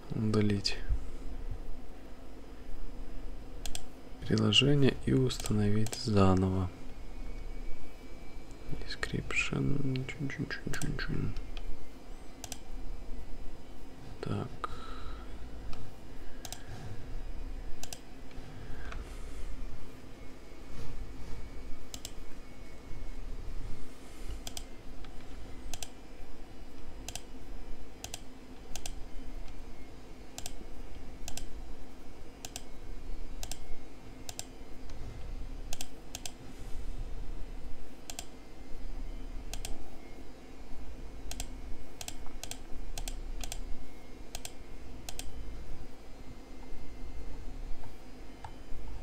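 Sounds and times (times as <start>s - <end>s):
low hum: 0.0s - 49.0s
keyboard and mouse clicks: 3.6s - 4.4s, 5.4s - 6.0s, 12.4s - 12.7s, 16.4s - 16.6s, 17.8s - 18.0s, 21.9s - 22.2s, 24.4s - 26.0s, 27.0s - 27.3s, 28.0s - 29.0s, 30.4s - 30.6s, 31.2s - 31.5s, 32.4s - 32.7s, 33.4s - 33.7s, 35.7s - 36.4s, 38.0s - 38.4s, 39.5s - 39.8s, 41.3s - 43.6s, 44.3s - 45.3s.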